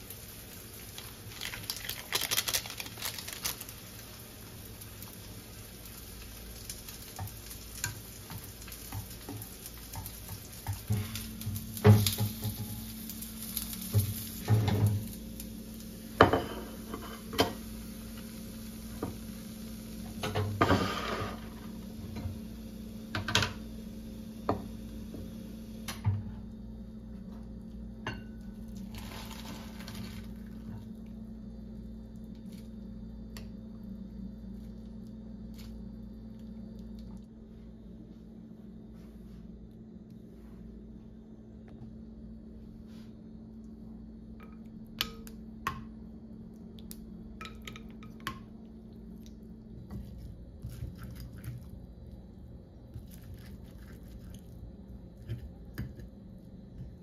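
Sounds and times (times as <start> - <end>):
food sizzling in a frying pan: 0.0 - 23.7, 28.8 - 30.6
steady low hum: 0.0 - 57.0.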